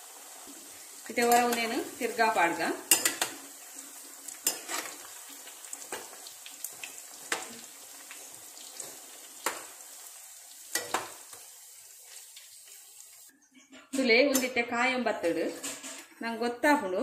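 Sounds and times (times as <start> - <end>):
dough deep-frying in hot oil: 0.0 - 13.3
metal spoon scraping a pan: 2.9 - 3.4, 4.3 - 5.2, 15.2 - 16.2.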